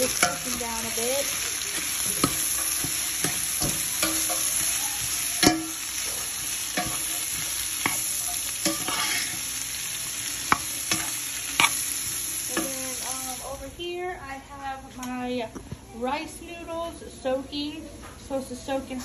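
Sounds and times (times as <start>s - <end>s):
vegetables sizzling in oil: 0.0s - 13.8s
spoon scraping and knocking pot: 2.1s - 9.4s.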